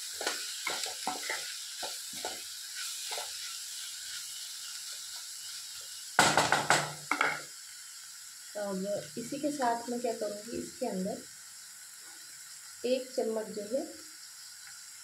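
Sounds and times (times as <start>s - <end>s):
vegetables sizzling in a pan: 0.0s - 15.0s
wooden spatula scraping a pan: 0.2s - 3.5s.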